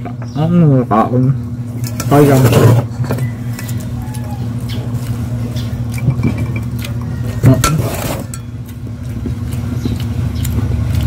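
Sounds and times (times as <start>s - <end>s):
low motor hum: 0.0s - 11.0s.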